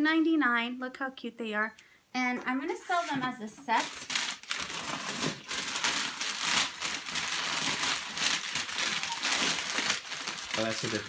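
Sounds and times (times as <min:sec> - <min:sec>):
wrapping rustling and crinkling: 0:02.8 - 0:11.0.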